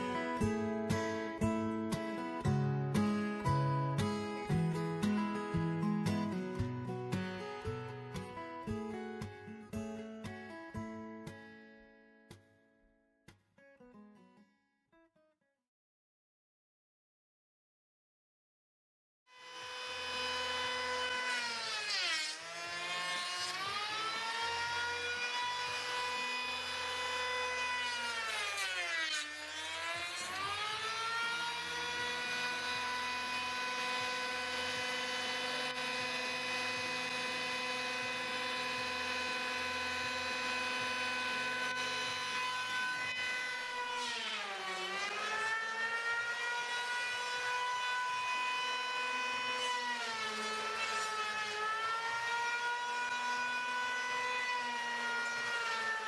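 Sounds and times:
electric grinder on wood: 0:19.3 - 0:56.0.

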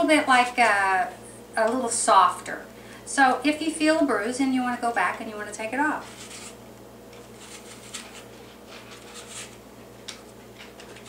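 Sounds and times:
peeler scraping apple skin: 0:06.0 - 0:09.6.

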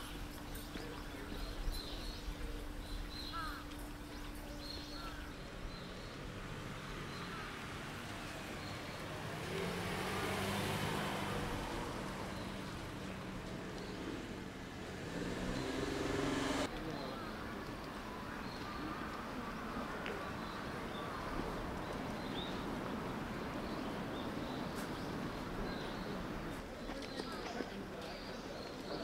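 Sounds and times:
motor vehicle passing: 0:05.0 - 0:17.1.

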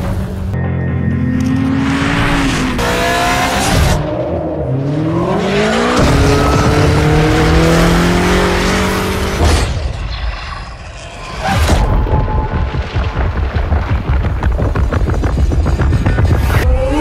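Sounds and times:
car engine revving hard: 0:01.7 - 0:09.4.

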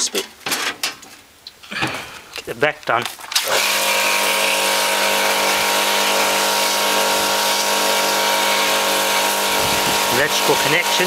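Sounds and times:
pressure washer pump humming: 0:03.2 - 0:11.0
water jet hissing: 0:03.2 - 0:11.0.

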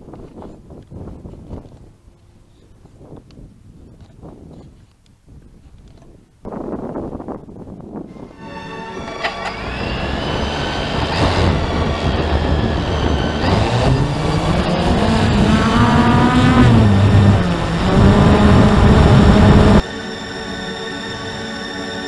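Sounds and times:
gliding tones: 0:08.1 - 0:22.0
loud rushing noise: 0:08.2 - 0:22.0.

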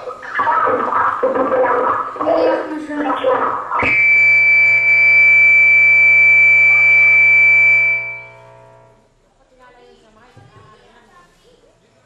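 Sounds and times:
loud piercing multi-pitch tone: 0:00.3 - 0:09.0.

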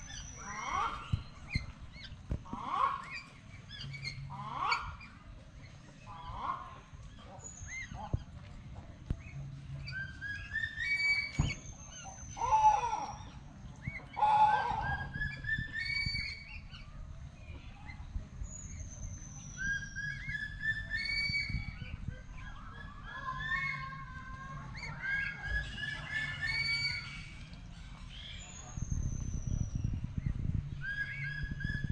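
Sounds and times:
ducks whistling calls: 0:00.0 - 0:08.4, 0:09.2 - 0:17.0, 0:17.6 - 0:31.9
low rumble: 0:11.5 - 0:31.9.

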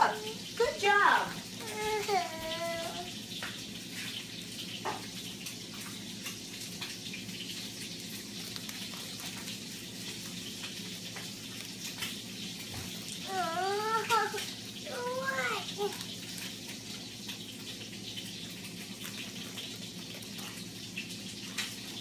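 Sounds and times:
crackers dropping in light ticks: 0:05.5 - 0:12.7
plastic snack bag crinkling: 0:05.6 - 0:22.0.

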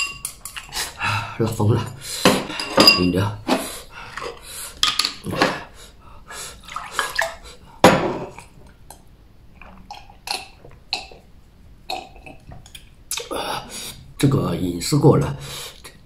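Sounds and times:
glass mug clinks: 0:02.6 - 0:03.1
liquid sounds: 0:06.5 - 0:07.7
person gulping and swallowing: 0:09.5 - 0:13.5.

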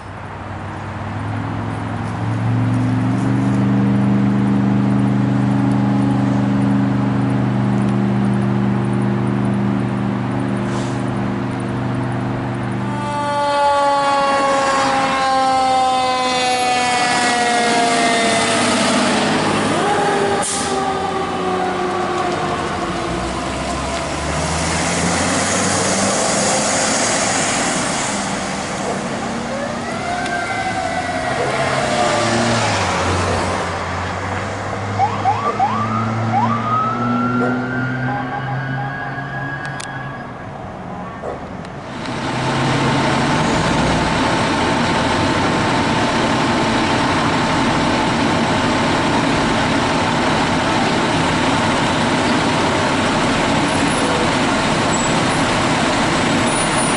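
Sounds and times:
vehicle engine noise: 0:00.0 - 0:56.9
falling siren tone: 0:12.8 - 0:33.5, 0:35.0 - 0:41.2
electronic siren sweeping and yelping: 0:28.8 - 0:32.6, 0:35.0 - 0:41.2.

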